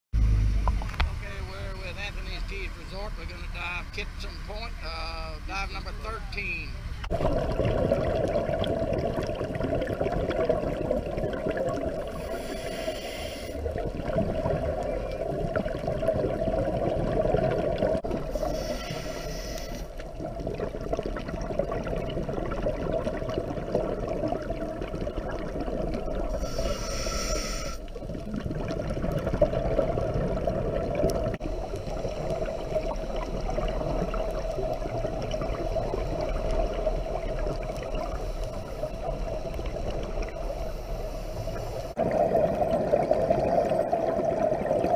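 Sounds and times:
underwater rush: 0:00.2 - 0:44.9
exhaled air bubbles: 0:07.1 - 0:44.9
regulator breathing: 0:12.0 - 0:13.7, 0:18.2 - 0:20.0, 0:26.3 - 0:27.9.

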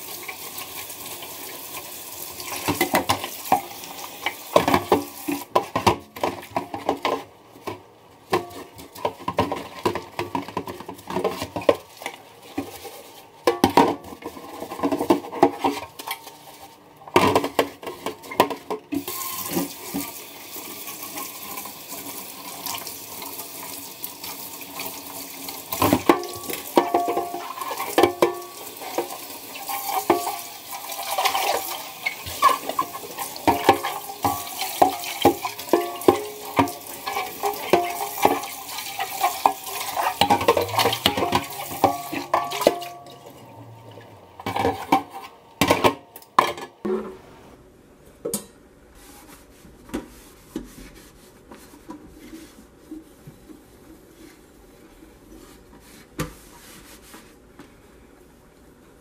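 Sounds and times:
water splashing in sink: 0:19.0 - 0:46.0
basket knocking against sink: 0:40.1 - 0:43.1
sponge scrubbing: 0:49.0 - 0:57.4.

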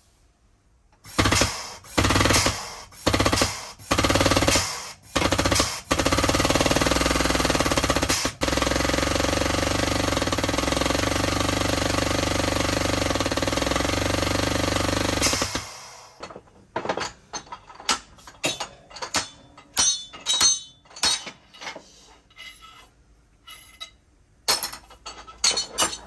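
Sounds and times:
hydraulic pump running: 0:01.1 - 0:16.2.

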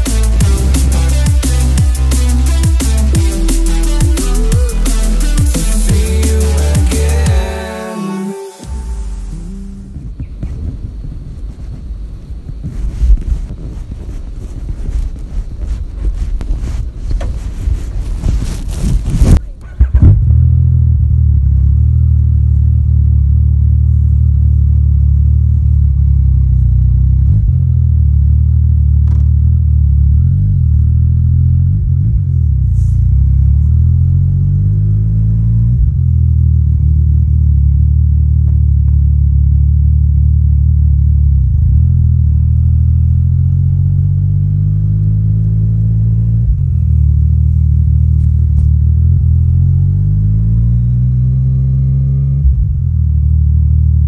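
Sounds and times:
exhaust pops: 0:08.6 - 0:21.7, 0:28.9 - 0:29.7, 0:44.4 - 0:49.7
motorcycle engine revving: 0:19.8 - 0:54.0.

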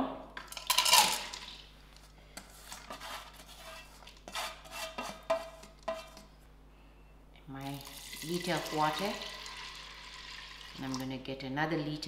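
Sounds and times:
steel bowl scraping metal pot: 0:02.7 - 0:06.2.

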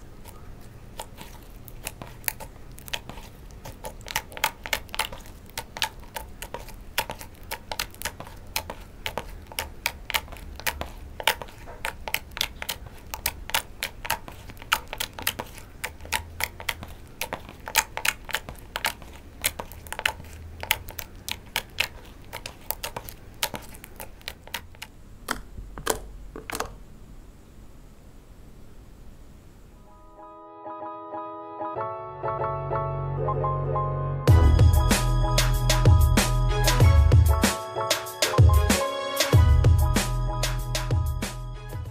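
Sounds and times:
slime clicking and popping: 0:00.2 - 0:26.8.

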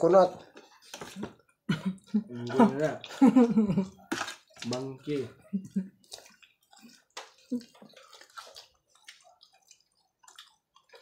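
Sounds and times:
person eating: 0:00.4 - 0:11.0.

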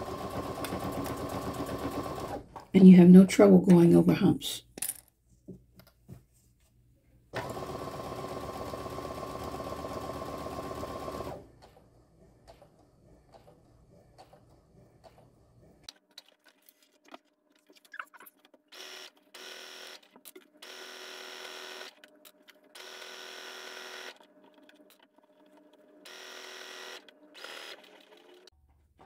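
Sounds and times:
sewing machine stitching: 0:00.0 - 0:02.6, 0:07.4 - 0:15.3, 0:22.7 - 0:28.5.

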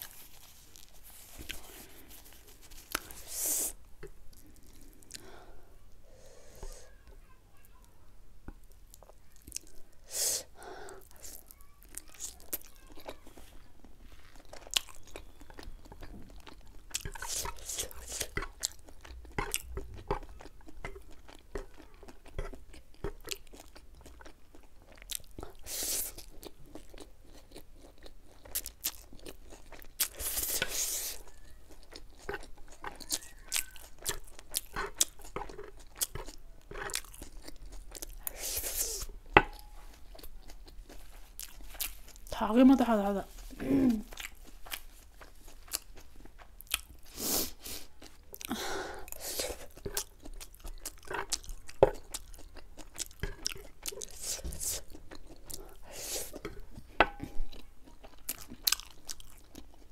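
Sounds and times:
chewing and crunching food: 0:00.0 - 0:05.6, 0:06.6 - 0:10.1, 0:10.8 - 0:59.9.

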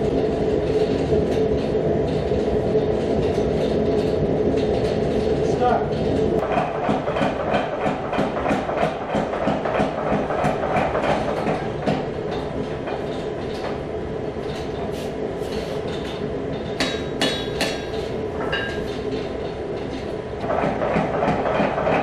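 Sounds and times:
power hammer pounding metal: 0:06.1 - 0:13.8, 0:16.6 - 0:18.8, 0:20.4 - 0:22.0
hand hammer blows on anvil: 0:16.8 - 0:18.8.

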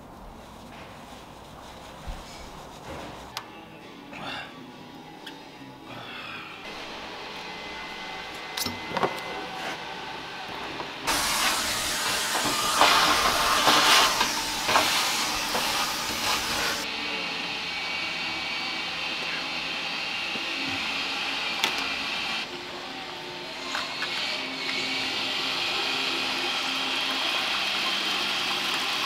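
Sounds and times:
loud even hiss: 0:11.1 - 0:16.9.

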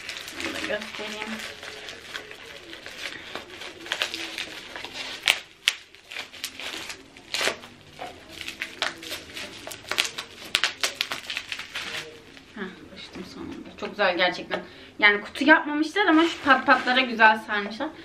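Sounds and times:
bubble wrap crinkling and tearing: 0:00.0 - 0:12.6, 0:15.9 - 0:17.5.

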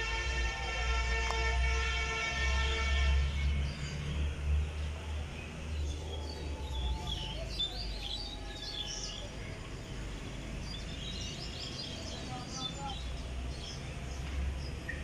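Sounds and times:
passing train rumble: 0:00.0 - 0:14.9
small birds chirping: 0:03.2 - 0:15.0.

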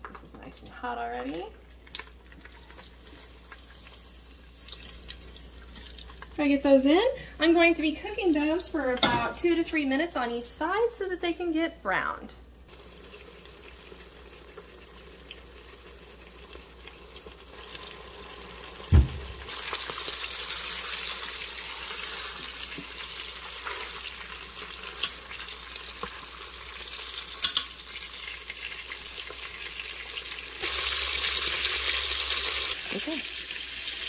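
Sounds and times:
chicken sizzling in oil: 0:12.7 - 0:34.0
sharp knock: 0:18.9 - 0:19.5
metal tongs clicking on pot: 0:27.4 - 0:27.7.

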